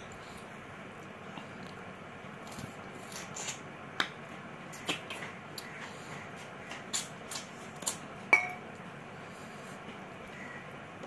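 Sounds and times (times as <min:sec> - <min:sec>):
person chewing: 0:00.0 - 0:04.1, 0:06.8 - 0:08.1.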